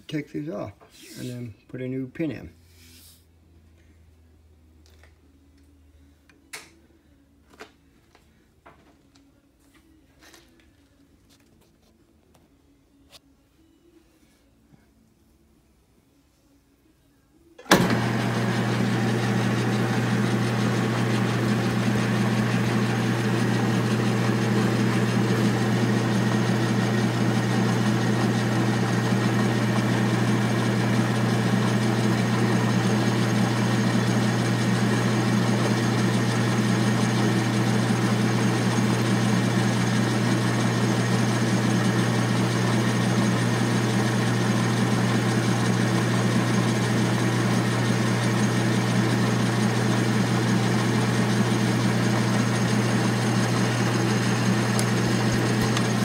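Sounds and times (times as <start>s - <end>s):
metal lathe humming: 17.6s - 56.0s.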